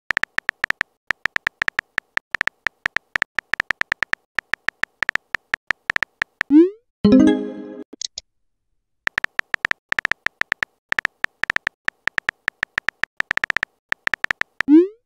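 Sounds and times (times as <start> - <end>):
phone keyboard typing clicks: 0.1 - 6.5, 9.1 - 14.7.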